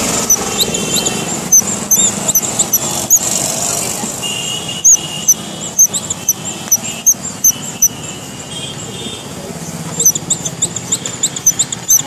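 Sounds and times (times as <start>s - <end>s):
toy mice squeaking: 0.0s - 3.4s, 4.8s - 8.0s, 9.9s - 12.0s.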